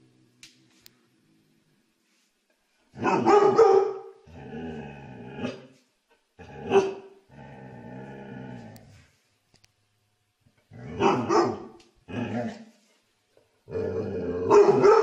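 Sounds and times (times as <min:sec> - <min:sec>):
dog barking: 0:03.0 - 0:04.2, 0:06.7 - 0:07.1, 0:11.0 - 0:11.8, 0:14.4 - 0:15.0
dog growling: 0:04.2 - 0:05.7, 0:06.4 - 0:09.0, 0:10.7 - 0:12.8, 0:13.7 - 0:14.8.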